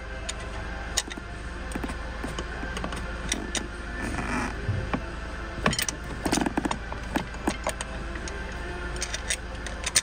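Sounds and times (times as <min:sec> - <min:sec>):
low hum: 0:00.0 - 0:10.0
hand tools clicking on metal: 0:05.7 - 0:10.0.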